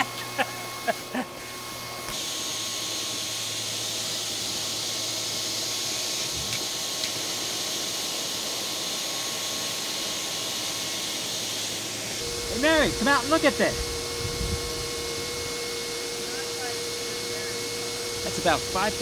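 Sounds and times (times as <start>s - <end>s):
shop vacuum running: 0.0s - 19.0s
air hissing through hose: 9.6s - 19.0s.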